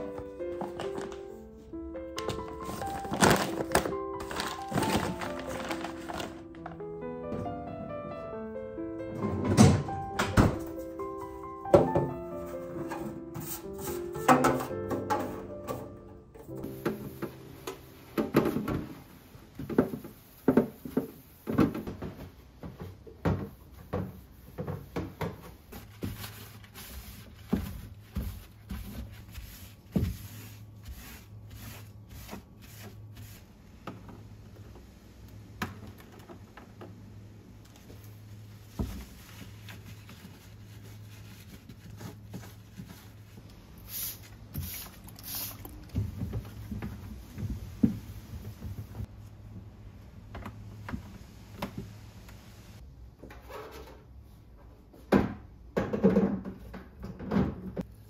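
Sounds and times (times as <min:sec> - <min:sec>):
sponge scrubbing plastic trays: 0:22.6 - 0:33.4.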